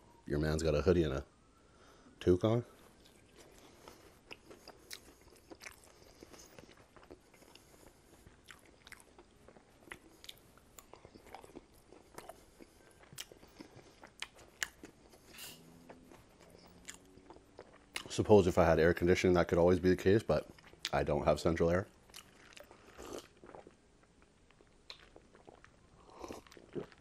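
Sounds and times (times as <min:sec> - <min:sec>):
close chewing with wet mouth clicks: 0:02.8 - 0:18.2, 0:20.4 - 0:21.0, 0:21.9 - 0:27.0.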